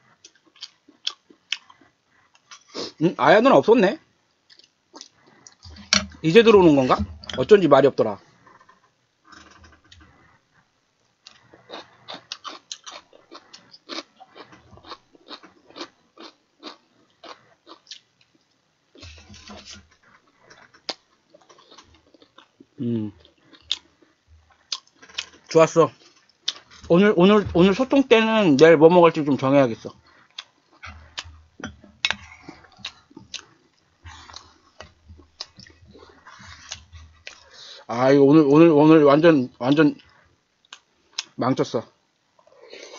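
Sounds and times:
wet chewing and lip-smacking: 0.2s - 2.7s, 11.2s - 18.4s, 20.2s - 26.7s, 30.0s - 37.6s.

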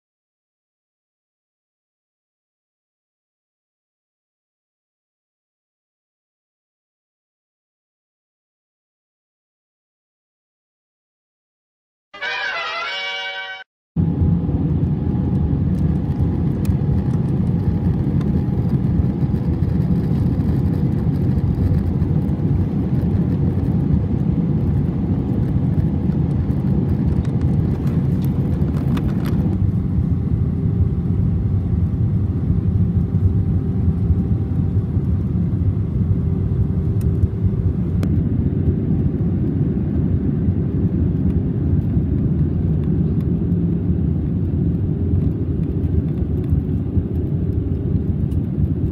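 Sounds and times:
airliner engines and airflow rush: 12.2s - 48.9s.

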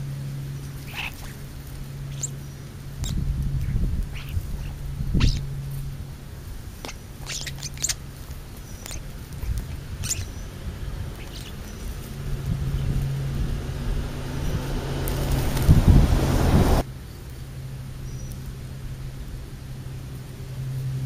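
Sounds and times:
starlings squawking: 0.0s - 6.0s, 6.6s - 13.1s
low hum and rumble: 0.0s - 21.0s.

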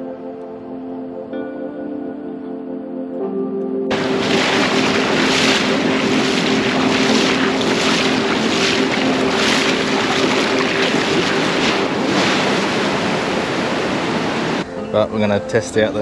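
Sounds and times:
feet splashing through surf: 3.9s - 14.7s
water washing in shallows: 3.9s - 14.7s.

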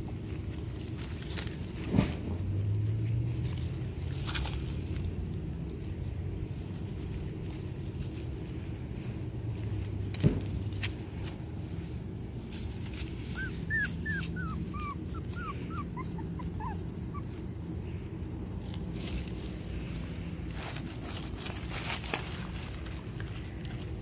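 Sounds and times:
puppy whimpering: 13.2s - 17.8s.

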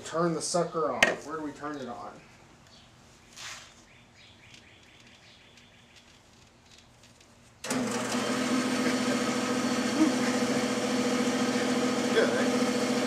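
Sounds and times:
band saw motor humming: 7.6s - 13.0s.

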